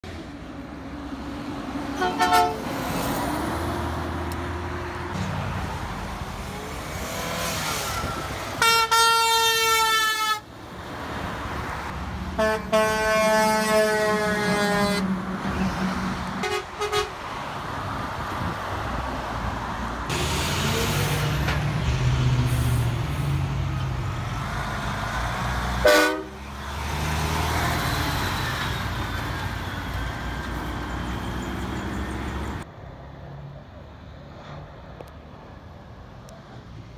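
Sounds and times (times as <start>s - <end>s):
diesel truck engines rumbling: 0.0s - 36.9s
truck horn blasts: 2.0s - 2.7s, 7.9s - 10.4s, 12.4s - 15.1s, 16.4s - 17.2s, 25.8s - 26.5s.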